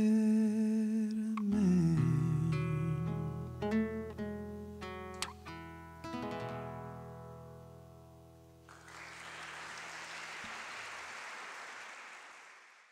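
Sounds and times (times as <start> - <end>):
classical guitar chord ringing: 1.8 - 8.6
audience applause: 8.7 - 12.9.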